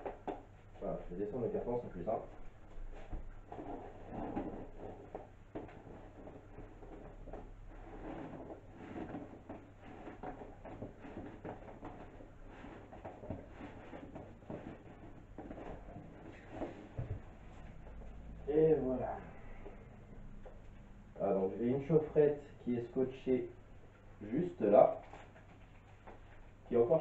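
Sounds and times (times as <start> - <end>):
cardboard box rustling and scraping: 2.9 - 17.7.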